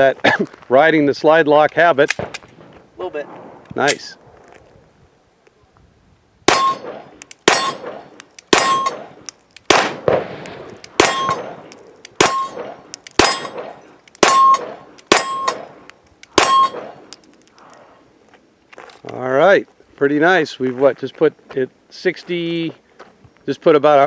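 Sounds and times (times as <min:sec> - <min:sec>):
steel target ringing clang: 0:06.5 - 0:09.3, 0:10.4 - 0:17.4
pistol shots: 0:06.5 - 0:17.3.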